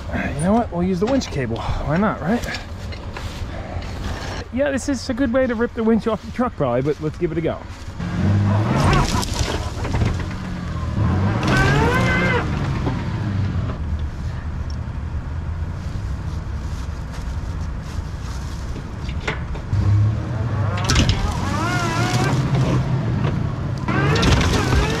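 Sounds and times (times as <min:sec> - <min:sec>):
electric winch humming: 0:20.7 - 0:22.5.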